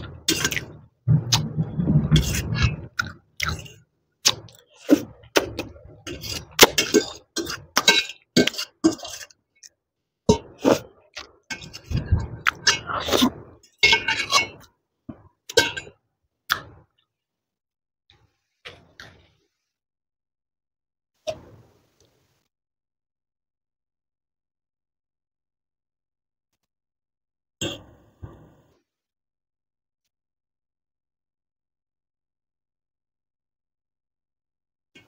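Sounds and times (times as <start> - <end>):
eating noises: 0.0 - 9.3.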